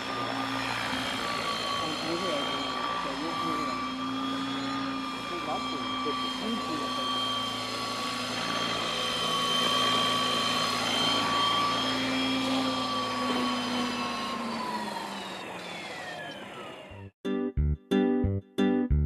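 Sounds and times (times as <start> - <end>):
rc helicopter whining: 0.0 - 17.1
guitar music: 17.2 - 19.0.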